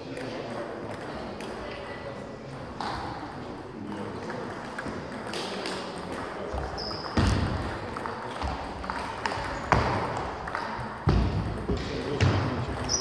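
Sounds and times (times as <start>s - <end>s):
table tennis ball clicking: 7.6s - 11.0s.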